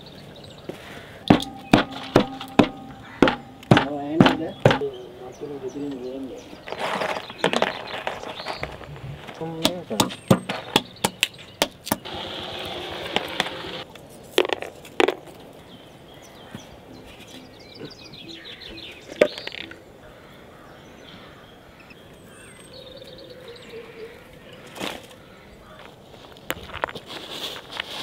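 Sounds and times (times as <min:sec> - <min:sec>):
quiet outdoor sound: 0:00.0 - 0:28.0
hammer knocking on shells: 0:01.3 - 0:04.9.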